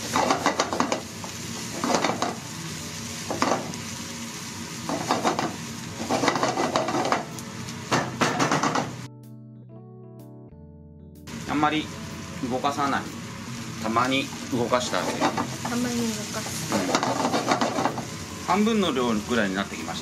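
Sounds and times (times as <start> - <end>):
vegetables sizzling in frying pan: 0.0 - 9.1, 11.3 - 20.0
spatula scraping pan: 5.0 - 7.2, 16.4 - 18.0.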